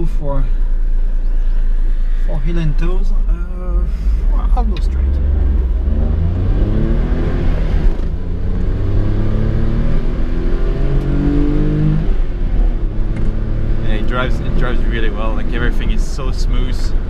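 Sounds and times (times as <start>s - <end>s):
car engine accelerating: 0.0s - 17.0s.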